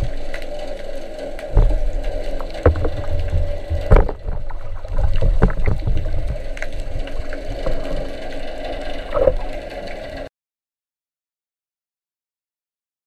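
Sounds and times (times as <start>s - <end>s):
sea water sloshing and splashing: 0.0s - 10.3s
knocks: 2.6s - 4.3s.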